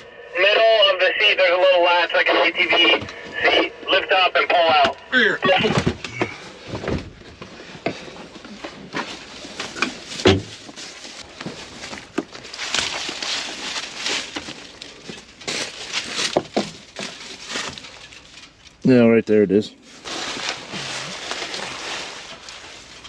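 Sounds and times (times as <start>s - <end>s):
rustling in dry corn stubble: 9.1s - 18.4s, 19.8s - 23.0s.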